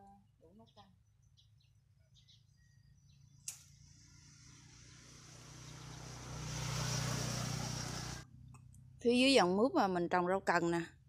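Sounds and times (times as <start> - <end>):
birds chirping: 0.4 - 8.2.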